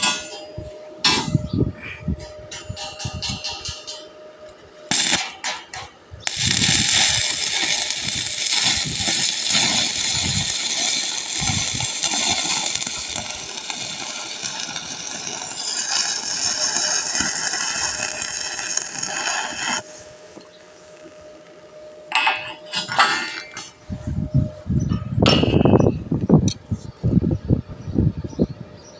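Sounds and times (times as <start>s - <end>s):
welding arc crackling and sizzling: 4.9s - 21.6s.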